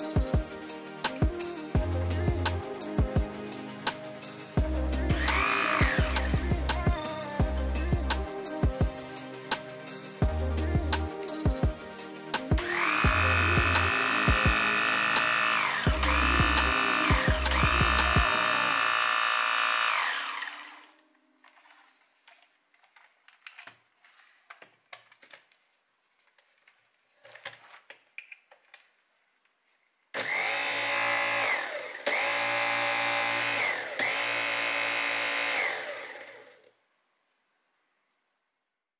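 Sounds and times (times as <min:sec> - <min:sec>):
vacuum brush bar motor: 0:05.2 - 0:06.4, 0:12.6 - 0:21.0, 0:30.2 - 0:36.7.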